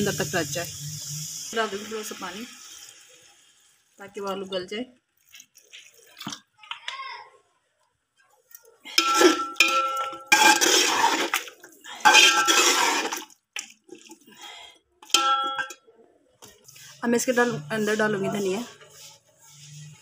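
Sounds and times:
spoon scraping metal pot: 8.9 - 13.3.

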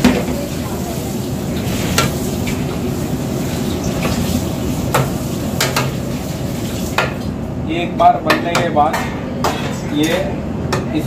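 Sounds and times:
onions sizzling in a frying pan: 0.0 - 7.2.

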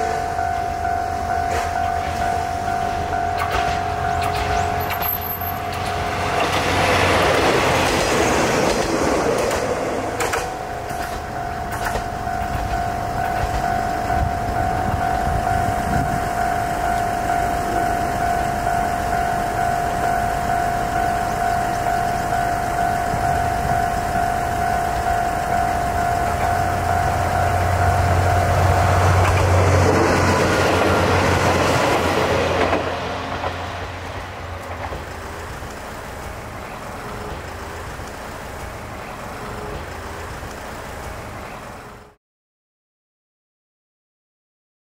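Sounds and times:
diesel railcar engine hum: 0.0 - 42.2
steady high whine: 0.0 - 42.2
wheels rattling on rail: 0.0 - 42.2.

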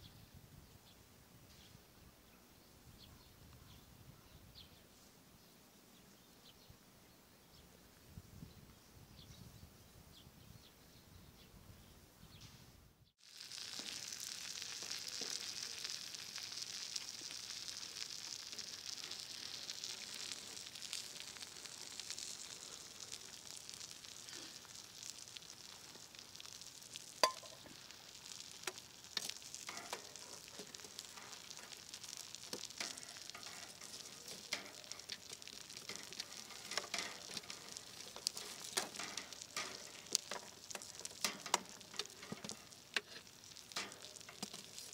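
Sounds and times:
food sizzling in a frying pan: 13.2 - 44.9.

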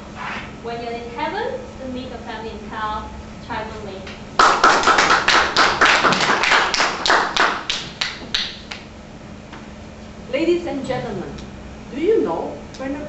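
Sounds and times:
small audience applauding: 4.4 - 8.9.

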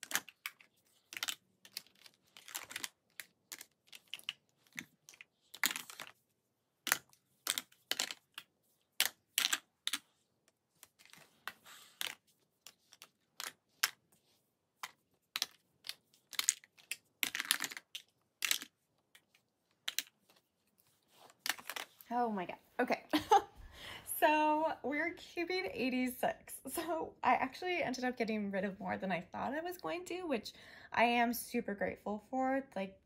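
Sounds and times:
makeup compacts clicking and clattering: 6.8 - 10.1, 14.8 - 19.3.

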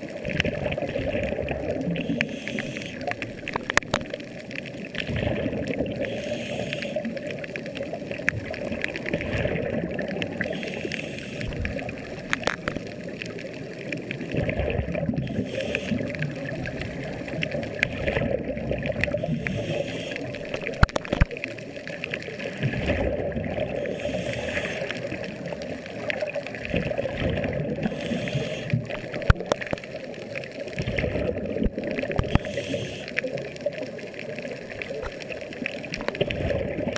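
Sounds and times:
air bubbling underwater: 4.9 - 6.1, 8.4 - 10.6, 14.2 - 19.4, 26.5 - 28.0, 30.8 - 32.5.

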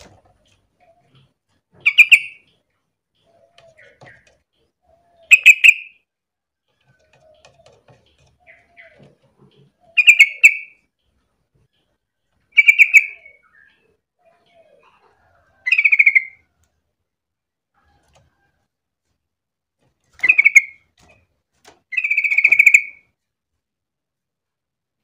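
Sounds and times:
bulbul singing: 0.8 - 6.1, 9.7 - 11.2, 12.5 - 15.0, 21.9 - 23.1.

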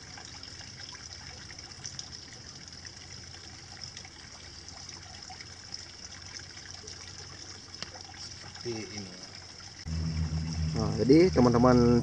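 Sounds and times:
water trickling: 0.0 - 12.0.

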